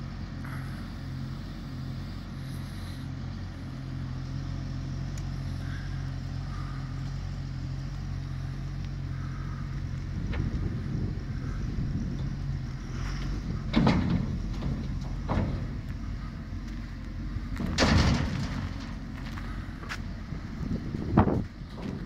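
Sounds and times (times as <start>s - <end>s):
diesel engine running: 0.0s - 22.0s
heavy metal clunks: 11.9s - 16.8s, 17.4s - 20.0s
bin lowered hydraulically: 12.8s - 16.4s, 17.6s - 19.1s.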